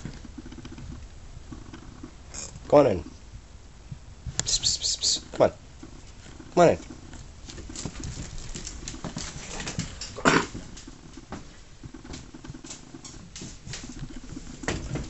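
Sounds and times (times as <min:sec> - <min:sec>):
paws tapping on floor: 0:00.0 - 0:02.2, 0:05.8 - 0:15.0.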